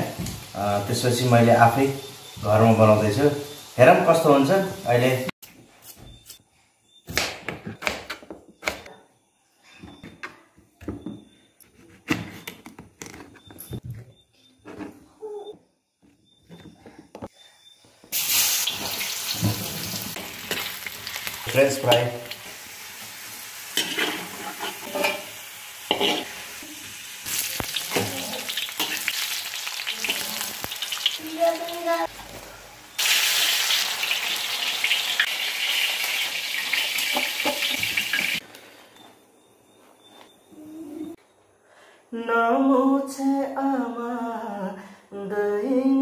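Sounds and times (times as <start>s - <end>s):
fries sizzling in oil: 0.0s - 5.3s, 18.1s - 38.4s
metal spatula scraping wok: 23.7s - 26.6s.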